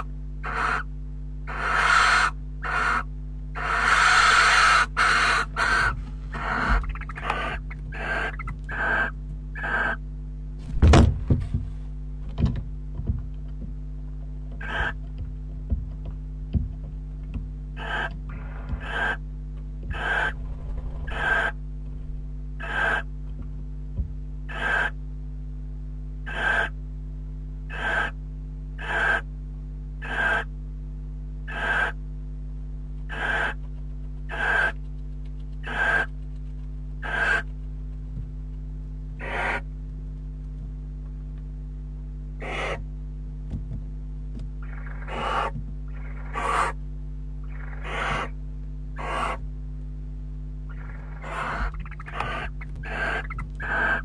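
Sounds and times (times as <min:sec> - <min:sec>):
barn owl hissing calls: 0:00.0 - 0:00.9, 0:01.5 - 0:10.0, 0:14.6 - 0:15.0, 0:17.8 - 0:19.2, 0:19.9 - 0:21.6, 0:22.6 - 0:23.1, 0:24.5 - 0:25.0, 0:26.2 - 0:26.8, 0:27.7 - 0:28.2, 0:28.8 - 0:29.3, 0:30.0 - 0:30.5, 0:31.5 - 0:32.0, 0:33.1 - 0:33.6, 0:34.3 - 0:34.8, 0:35.6 - 0:36.1, 0:37.0 - 0:37.5, 0:39.2 - 0:39.7, 0:42.4 - 0:42.8, 0:44.6 - 0:46.8, 0:47.4 - 0:48.4, 0:49.0 - 0:49.4, 0:50.7 - 0:54.0
low electrical hum: 0:00.0 - 0:54.0.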